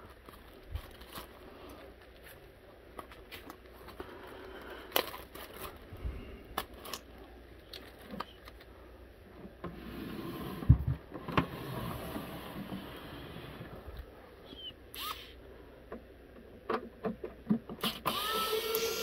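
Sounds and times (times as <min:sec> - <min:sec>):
plastic bag crinkling: 0:00.0 - 0:03.9, 0:04.9 - 0:08.7.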